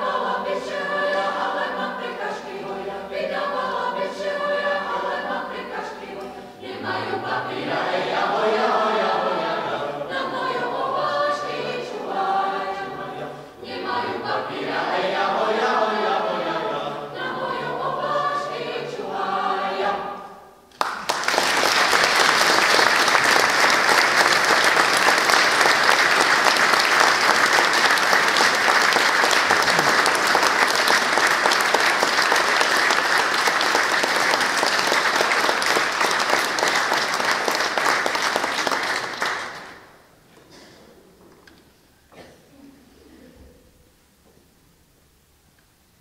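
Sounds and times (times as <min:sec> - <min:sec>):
mixed choir singing unaccompanied: 0:00.0 - 0:20.6, 0:21.4 - 0:39.8
audience applauding: 0:20.7 - 0:39.9.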